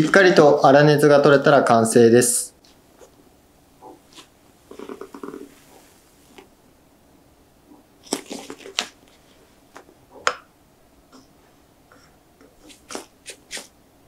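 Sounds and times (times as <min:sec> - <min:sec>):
steamed bun tearing and squishing: 0:08.0 - 0:09.3.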